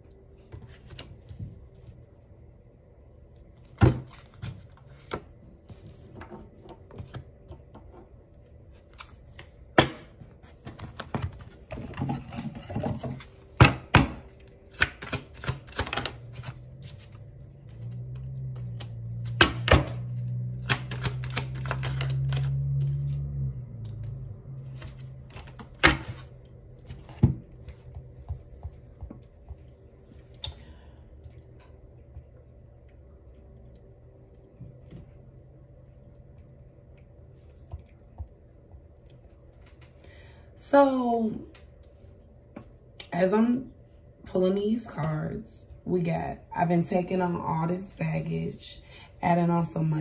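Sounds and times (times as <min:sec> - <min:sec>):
steady low hum: 0:00.0 - 0:50.0
cards shuffling: 0:14.7 - 0:23.2, 0:24.7 - 0:27.3.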